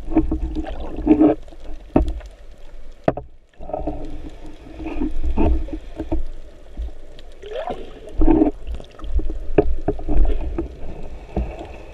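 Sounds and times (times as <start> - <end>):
muffled underwater water noise: 0.0 - 11.9
sharp clicks and knocks: 3.0 - 3.4.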